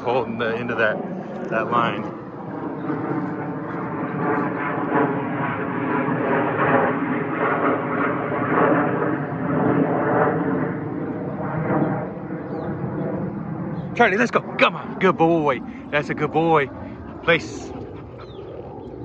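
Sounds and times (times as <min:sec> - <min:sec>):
engine drone with pitched hum: 0:10.6 - 0:19.0.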